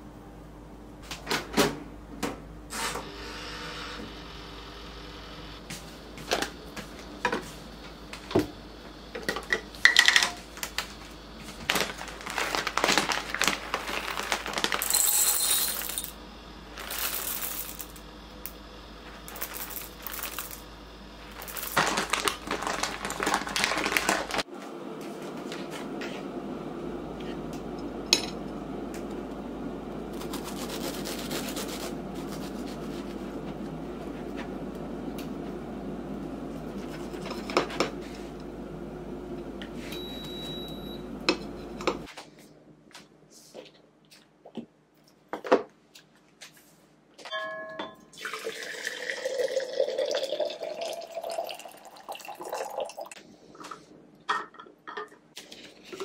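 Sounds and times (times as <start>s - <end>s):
steady low hum: 0.0s - 43.3s
short beep: 40.0s - 41.0s
water pouring into kettle: 48.2s - 53.2s.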